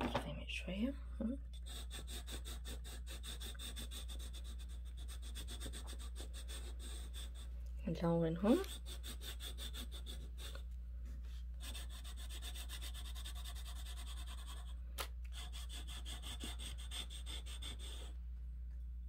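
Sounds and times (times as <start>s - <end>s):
chalk scratching on paper: 1.6s - 18.1s.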